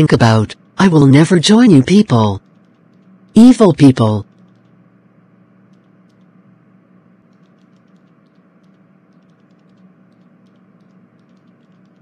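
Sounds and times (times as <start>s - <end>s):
faint room hum: 0.0s - 12.0s
light irregular clicks: 7.3s - 12.0s.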